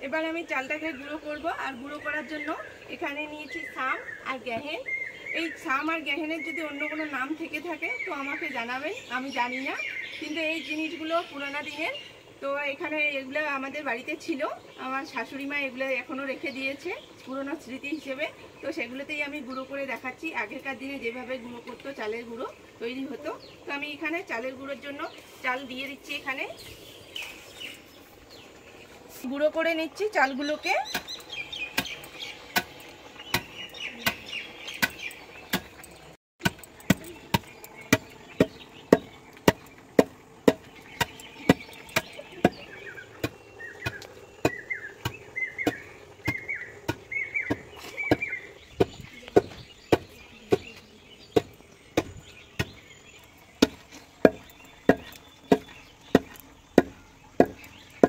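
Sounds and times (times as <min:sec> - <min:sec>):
wooden pestle pounding rice: 0:36.4 - 0:50.7, 0:53.6 - 0:58.0.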